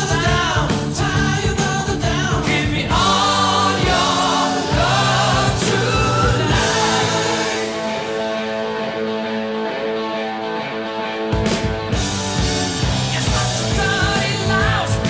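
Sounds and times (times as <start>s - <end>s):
band with steady beat: 0.0s - 8.4s, 11.4s - 15.0s
person singing: 0.0s - 8.4s, 13.1s - 15.0s.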